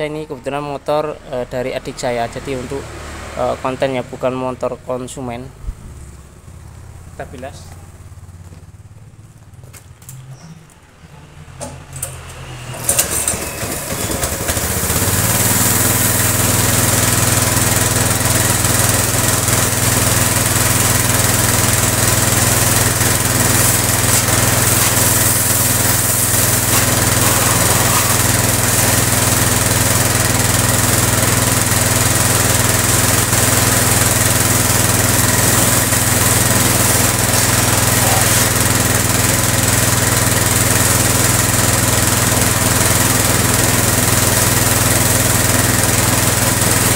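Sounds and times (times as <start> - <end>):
pressure washer humming: 11.6 - 46.9
water jet hissing: 13.1 - 41.4.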